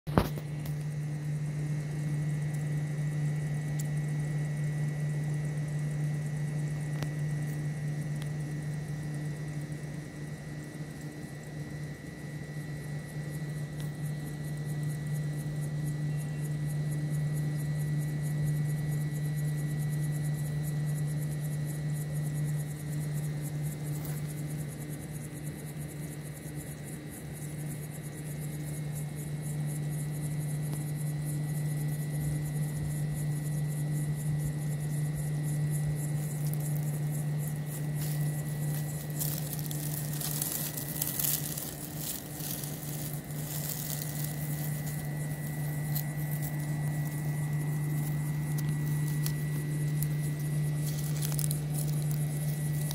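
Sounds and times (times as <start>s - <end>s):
steady low hum: 0.0s - 52.9s
faint high whine: 0.1s - 52.9s
dry crackling and rustling: 35.6s - 52.9s.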